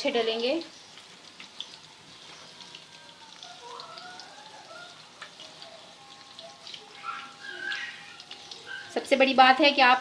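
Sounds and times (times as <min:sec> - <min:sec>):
batter deep-frying crackle: 0:00.0 - 0:10.0.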